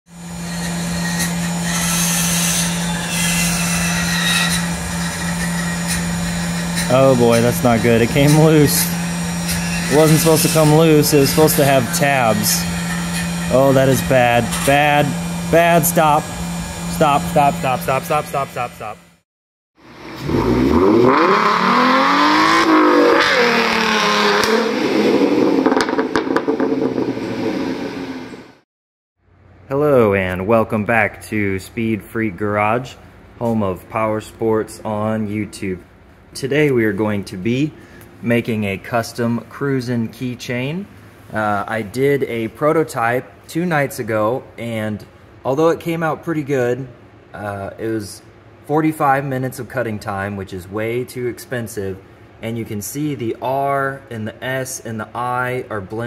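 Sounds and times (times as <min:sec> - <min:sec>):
high-pitched cutting noise: 0:00.1 - 0:19.2, 0:19.9 - 0:28.4
cutting and coolant hiss: 0:00.2 - 0:19.0
milling machine hum: 0:00.2 - 0:19.1
car engine revving hard: 0:19.8 - 0:28.4.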